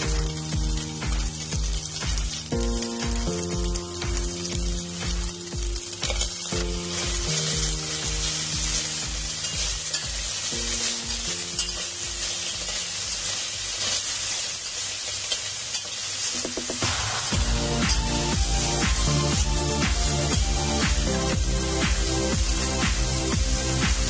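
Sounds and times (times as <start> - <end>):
background music with beat: 0.0 - 12.4, 16.4 - 24.0
chicken sizzling in a pot: 0.0 - 24.0
metal utensil stirring: 6.0 - 16.8.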